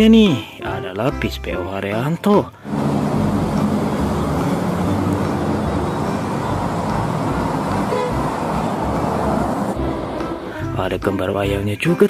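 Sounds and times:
traffic noise: 2.6 - 10.9
bus engine running: 2.6 - 11.0
bus horn toot: 2.7 - 10.6.

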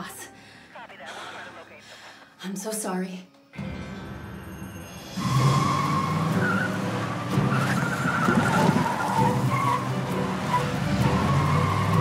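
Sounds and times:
car engine revving: 4.0 - 12.0
tyres squealing: 5.2 - 12.0.

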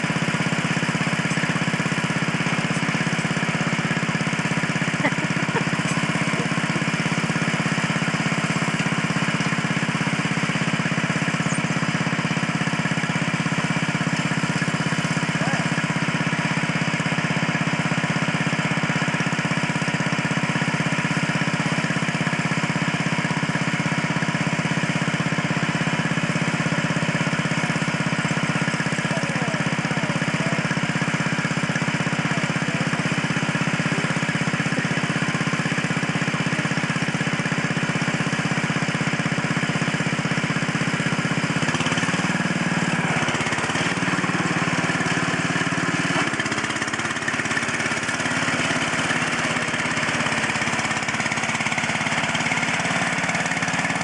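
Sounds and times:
garden tractor engine running: 0.0 - 54.0.

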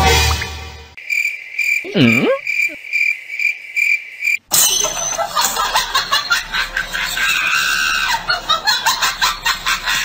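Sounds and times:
music: 0.0 - 1.0
crickets chirping: 1.0 - 4.5.

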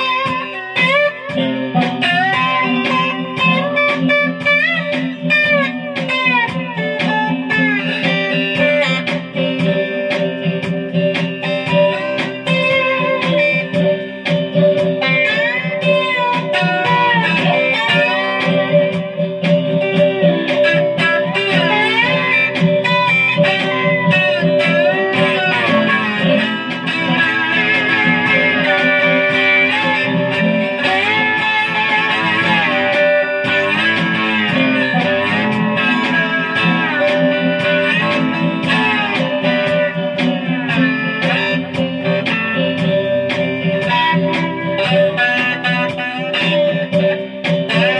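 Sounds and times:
blues slide guitar: 0.0 - 47.9.

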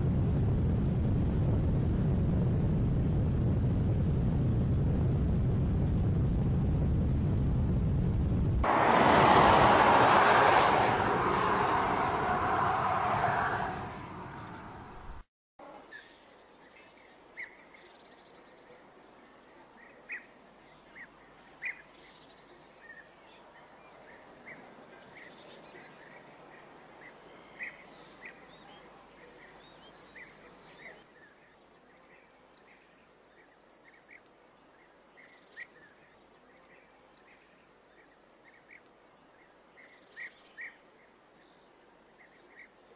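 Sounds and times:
car passing by: 8.6 - 15.2.

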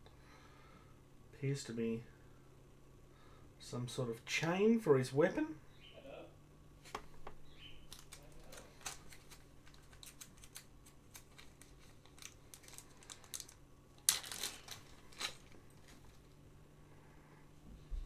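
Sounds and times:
plastic bag crinkling: 7.8 - 16.4.

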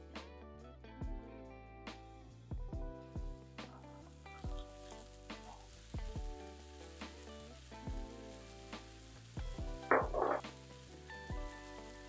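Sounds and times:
background music: 0.0 - 12.0
chickpeas sizzling in frying pan: 3.4 - 12.0
liquid hitting hot pan: 9.6 - 10.7.

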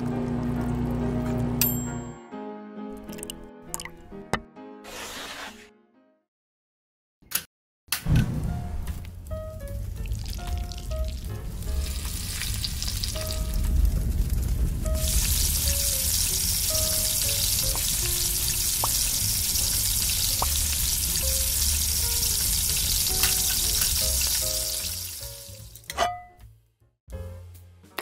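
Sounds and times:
light background music: 8.1 - 14.0, 14.8 - 28.0
food sizzling in hot oil: 10.2 - 13.6, 14.9 - 25.9.

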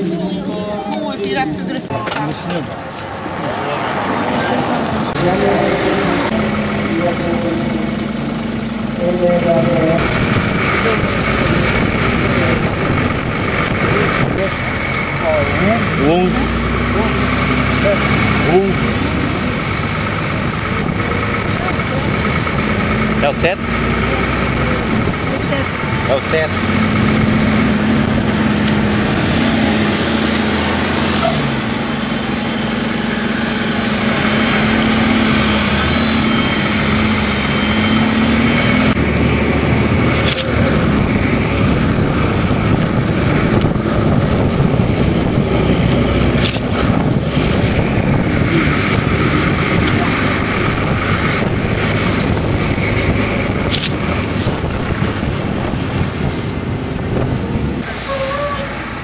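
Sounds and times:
bus engine humming: 0.0 - 59.0
road and traffic noise: 0.0 - 59.0.

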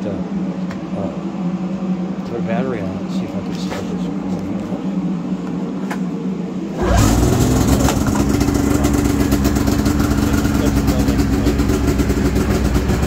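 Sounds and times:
steady low hum: 0.0 - 13.0
snowmobile engine starting and idling: 6.7 - 13.0.

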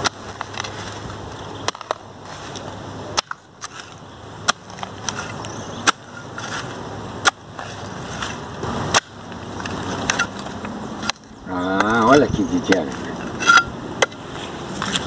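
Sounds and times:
dirt and grass rustling: 0.0 - 15.0
hand hoe chopping into soil: 1.6 - 10.4.

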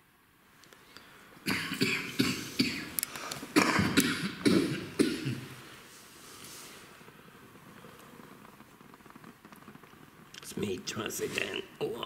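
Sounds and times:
person coughing hard: 1.5 - 2.9, 3.6 - 5.6.

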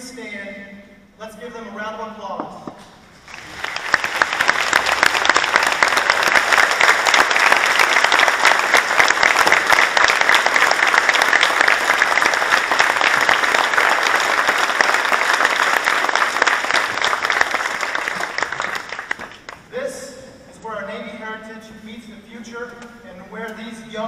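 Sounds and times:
crowd applauding: 3.2 - 19.7.

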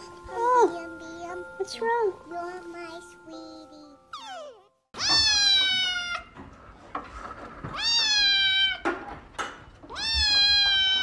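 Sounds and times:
kitten meowing loudly: 5.0 - 6.3.

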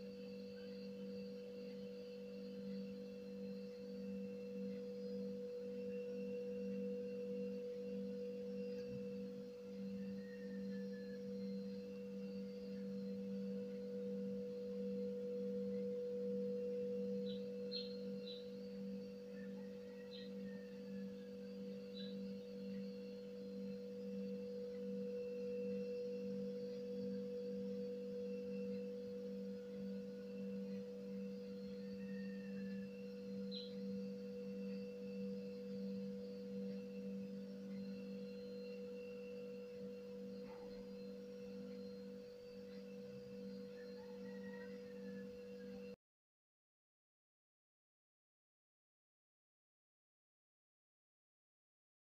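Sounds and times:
low machine hum: 0.0 - 46.0
faint high chirps: 6.0 - 46.0.

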